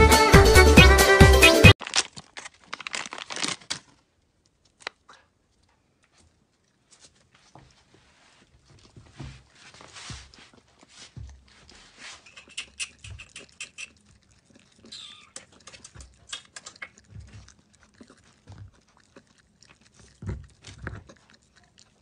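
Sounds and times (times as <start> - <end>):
puppy licking and eating: 4.9 - 22.0.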